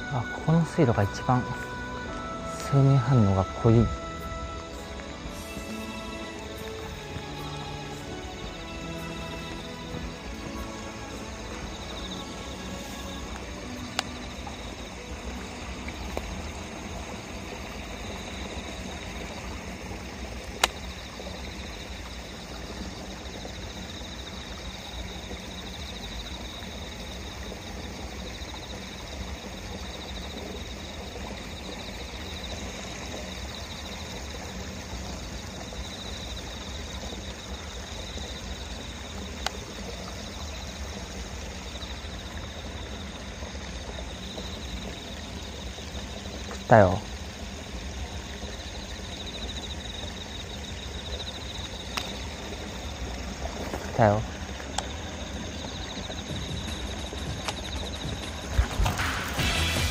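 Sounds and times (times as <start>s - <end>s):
low wind rumble: 0.0s - 59.9s.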